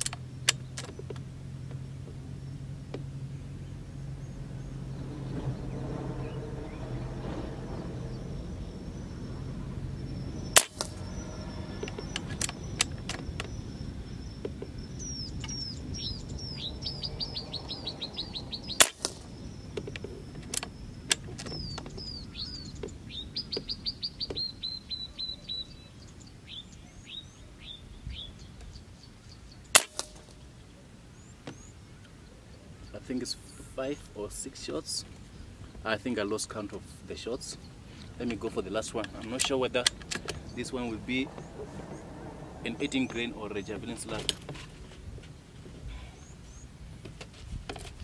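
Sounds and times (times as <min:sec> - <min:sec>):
small bird chirping: 0:00.0 - 0:46.8
air rifle shots: 0:10.6 - 0:11.1, 0:18.8 - 0:19.3, 0:29.7 - 0:30.4.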